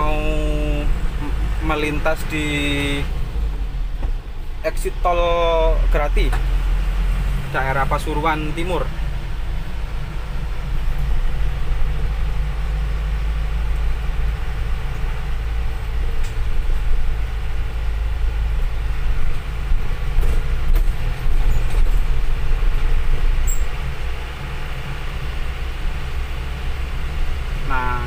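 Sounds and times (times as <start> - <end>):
diesel engine and tyres drone: 0.0 - 28.0.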